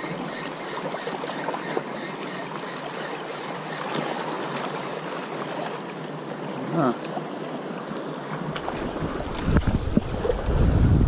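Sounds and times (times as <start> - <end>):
seawater washing among rocks: 8.3 - 11.0.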